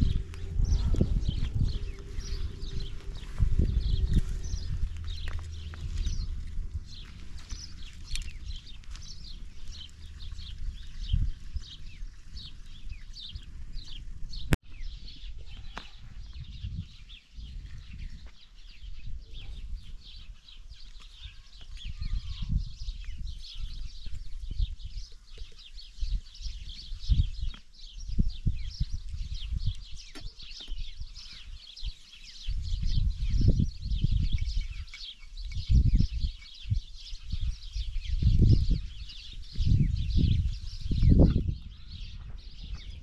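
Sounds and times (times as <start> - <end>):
low uneven rumble: 0.0 - 15.2
small birds chirping: 0.0 - 43.0.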